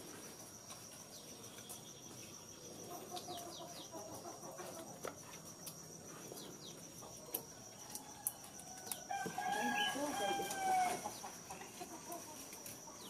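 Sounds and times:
insects trilling: 0:00.0 - 0:13.0
distant chickens clucking: 0:02.8 - 0:05.2, 0:06.4 - 0:13.0.

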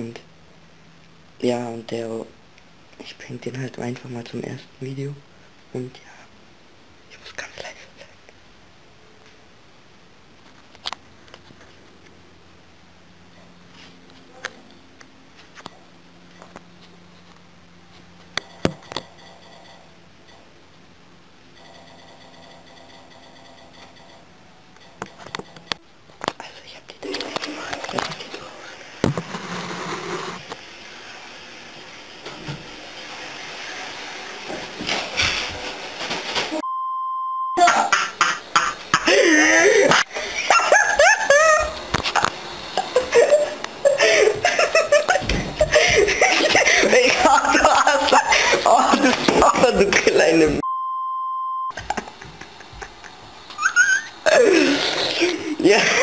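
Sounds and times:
faint steady hum: 0:00.0 - 0:33.2
censor bleep: 0:36.6 - 0:37.6, 0:50.6 - 0:51.8.

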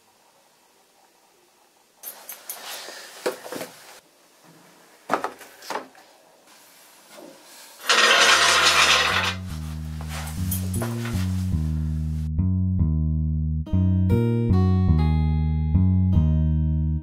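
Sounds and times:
music with deep bass: 0:09.5 - 0:17.0.

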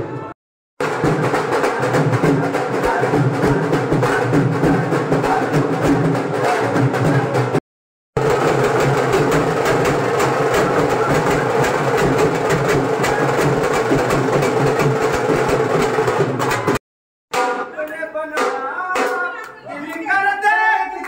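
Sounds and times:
distorted drum-led dance music: 0:00.8 - 0:07.6, 0:08.2 - 0:19.2.

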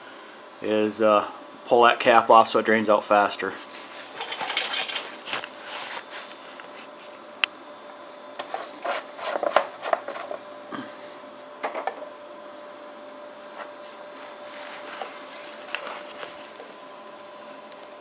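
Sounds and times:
plastic rubbing and scraping: 0:08.4 - 0:10.4.

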